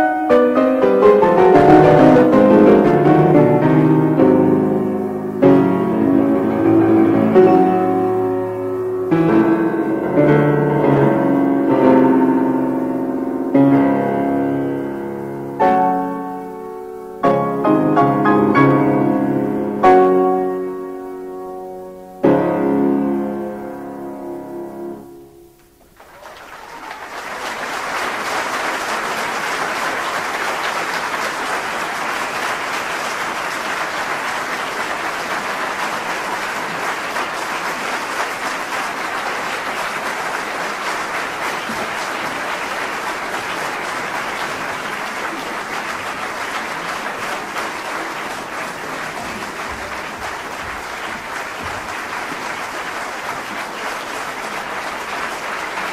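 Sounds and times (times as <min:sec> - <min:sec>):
audience applause: 0:00.0 - 0:13.6, 0:25.7 - 0:55.9
piano chord ringing: 0:00.0 - 0:26.0.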